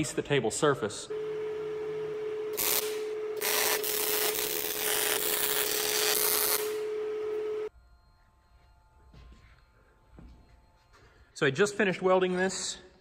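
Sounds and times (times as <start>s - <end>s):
steady hum: 0.0s - 11.4s
welder arc crackling: 2.5s - 7.4s.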